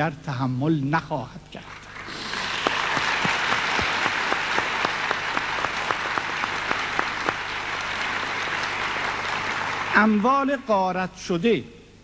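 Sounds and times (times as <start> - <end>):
audience applauding: 1.6 - 10.6
loud single claps: 2.4 - 9.9.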